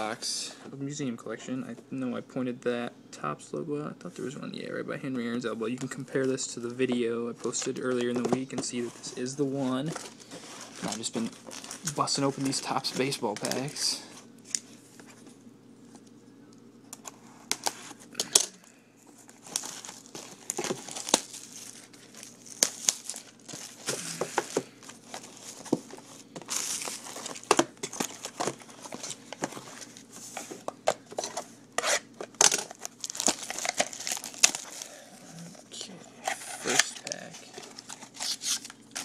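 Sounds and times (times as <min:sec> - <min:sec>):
cellophane crinkling: 0:05.6 - 0:15.1, 0:19.0 - 0:39.0.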